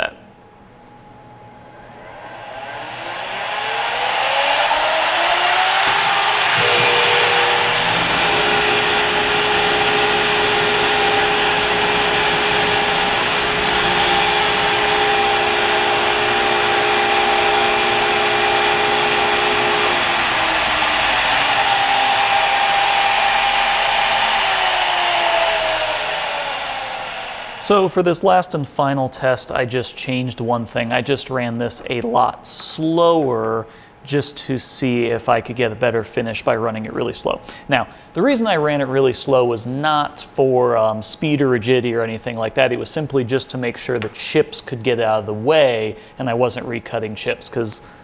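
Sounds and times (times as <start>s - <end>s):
end mill cutting aluminum: 1.0s - 27.8s
router spindle whine: 1.0s - 27.9s.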